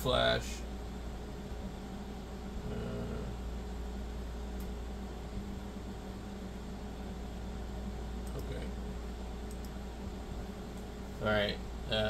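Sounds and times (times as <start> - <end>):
fans and electrical hum: 0.0 - 12.0
faint clicks: 9.5 - 9.8.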